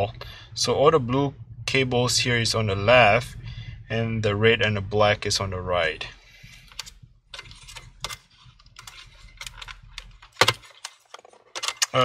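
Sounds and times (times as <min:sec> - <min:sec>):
plastic connectors clicking and rattling: 0:06.7 - 0:12.0.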